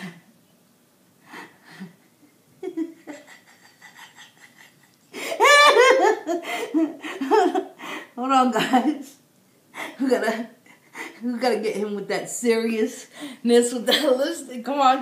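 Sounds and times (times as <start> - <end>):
woman laughing loudly: 2.6 - 7.8.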